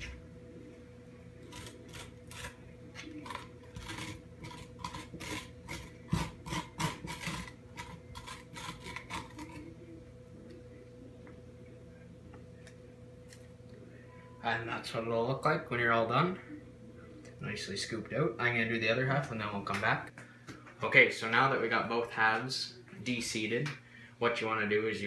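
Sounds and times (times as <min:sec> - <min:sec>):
spoon scraping squash: 0:01.4 - 0:09.8.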